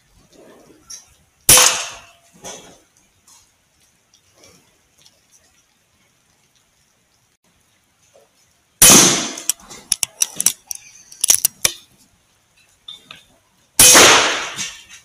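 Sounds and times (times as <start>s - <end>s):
air rifle shots: 1.5s - 2.1s, 8.8s - 9.6s, 13.8s - 14.8s
sharp clicks: 9.3s - 11.8s.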